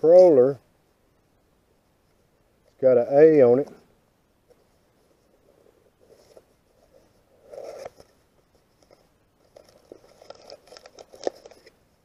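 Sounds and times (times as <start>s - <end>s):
packing paper rustling and crinkling: 6.0s - 12.0s.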